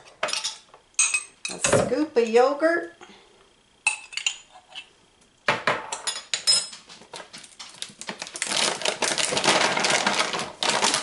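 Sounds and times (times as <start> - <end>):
kitchen things clinking and knocking: 0.2 - 2.0, 3.9 - 4.6, 5.5 - 7.9
plastic bag crinkling: 7.0 - 11.0.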